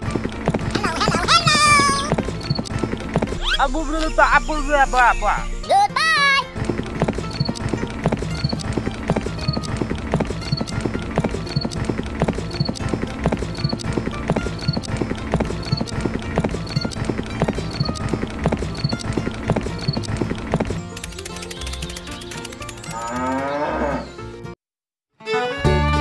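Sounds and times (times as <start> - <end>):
hooves clip-clopping: 6.6 - 23.5.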